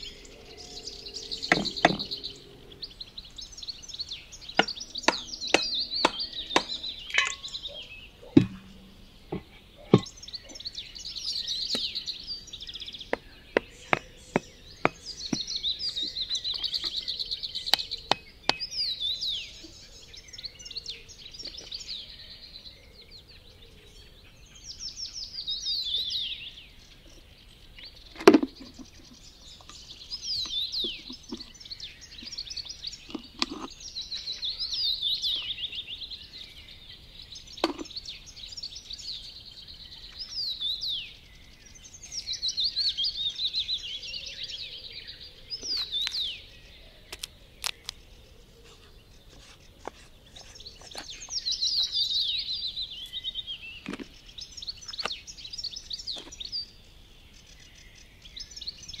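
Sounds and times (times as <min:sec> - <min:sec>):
small birds chirping: 0:00.0 - 0:59.0
sticks and wood knocking: 0:01.5 - 0:02.1, 0:04.6 - 0:07.5, 0:08.3 - 0:10.2
loud thump: 0:08.4 - 0:10.1.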